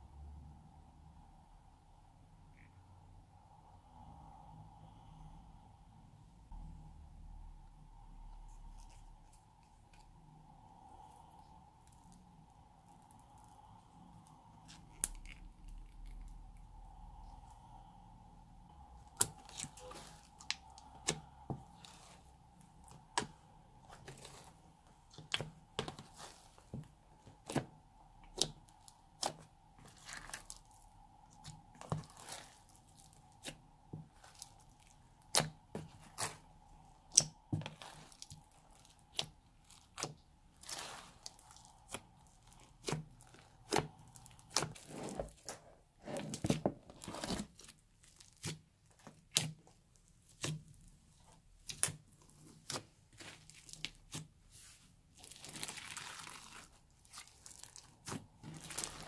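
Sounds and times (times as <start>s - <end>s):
slime crackling and popping: 14.2s - 16.7s, 19.0s - 22.2s, 25.1s - 45.6s, 46.3s - 54.3s, 55.2s - 59.0s.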